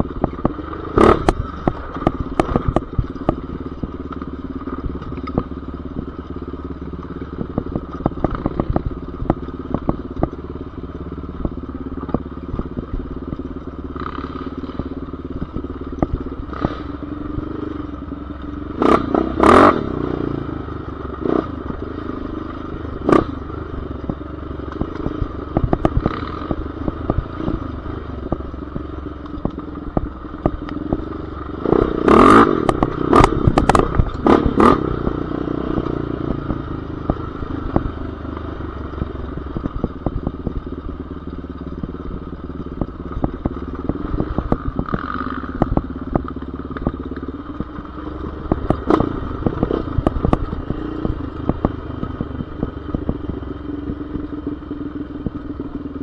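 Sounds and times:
off-road vehicle engine running: 0.0s - 56.0s.

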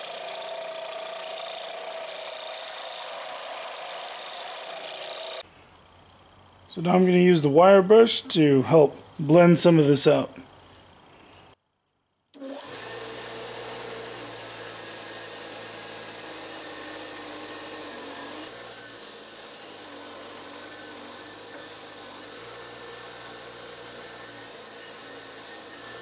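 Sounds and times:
grinder motor hum: 0.0s - 5.4s, 12.4s - 26.0s.

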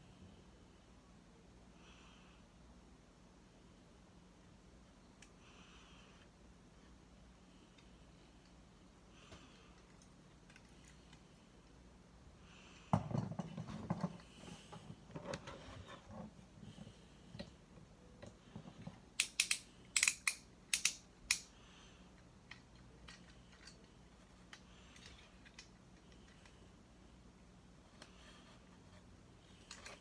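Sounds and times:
plastic toy clicks: 19.2s - 21.5s
toy parts rustling and knocking: 22.4s - 26.6s, 29.5s - 30.0s.

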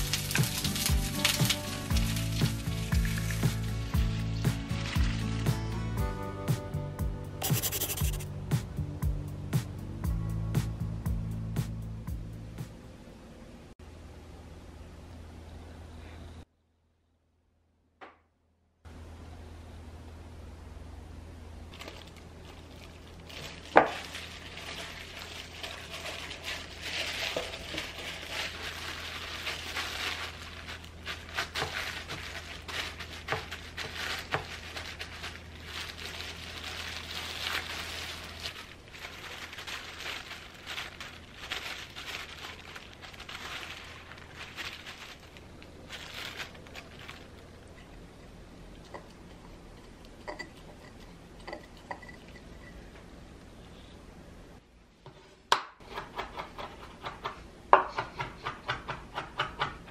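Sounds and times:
paper towels rustling: 0.0s - 6.0s, 21.7s - 47.6s
plastic gloves crinkling: 0.0s - 6.2s, 7.5s - 8.2s, 21.7s - 48.0s
low steady hum: 0.0s - 55.4s.

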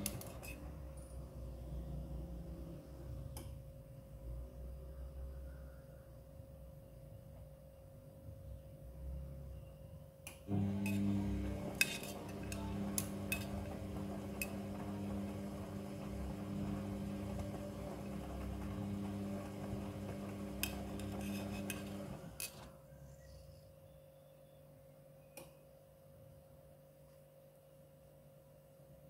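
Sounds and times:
washing machine motor humming: 0.0s - 3.0s, 10.5s - 22.7s.

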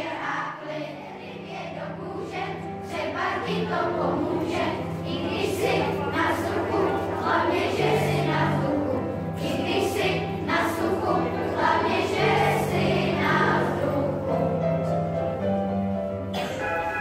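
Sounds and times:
children's choir singing: 0.0s - 15.4s, 16.4s - 17.0s.

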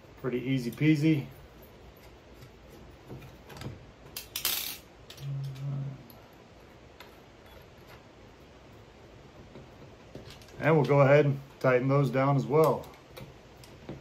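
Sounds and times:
low hum: 5.0s - 8.9s.

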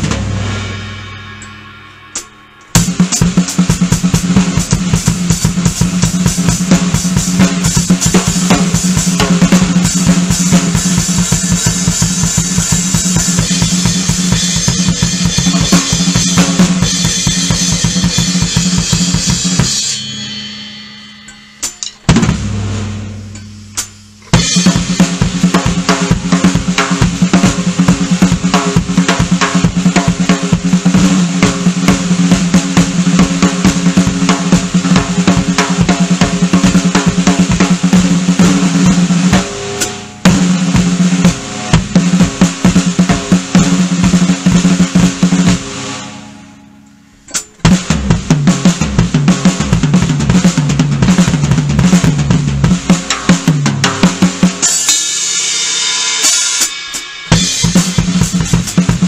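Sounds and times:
low drum hit ringing: 0.0s - 3.4s
fast drum kit solo: 0.0s - 46.5s, 47.3s - 59.0s.

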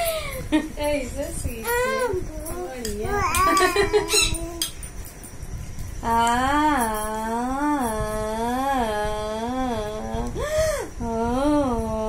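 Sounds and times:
person humming a long tone: 6.0s - 12.0s.

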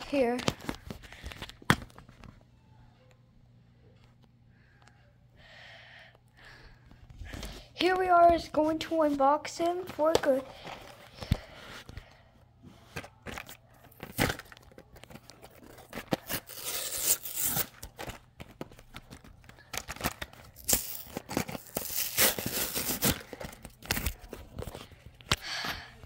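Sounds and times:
packaging tearing and crinkling: 13.2s - 24.6s.

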